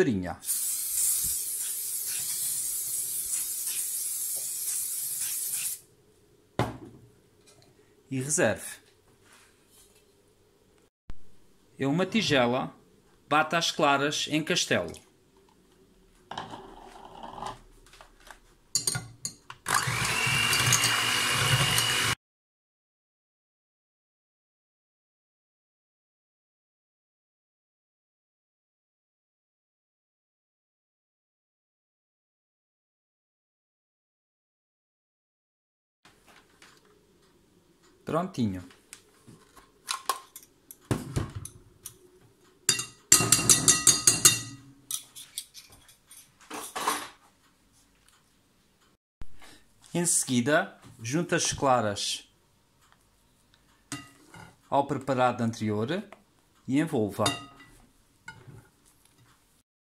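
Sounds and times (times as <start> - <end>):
electric hand mixer whining: 19.7 - 22.2
metal beaters clinking on glass bowl: 42.7 - 45.1, 57.2 - 58.5.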